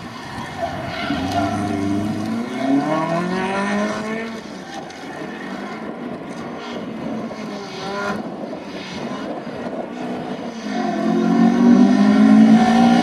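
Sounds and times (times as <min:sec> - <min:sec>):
rally car engine revving: 0:00.2 - 0:04.5, 0:10.5 - 0:13.0.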